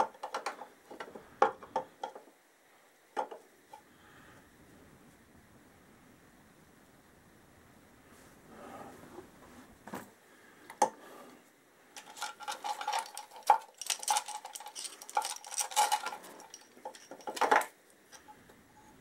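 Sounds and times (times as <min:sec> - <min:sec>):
metal chain rattling and clinking: 0:12.0 - 0:17.8.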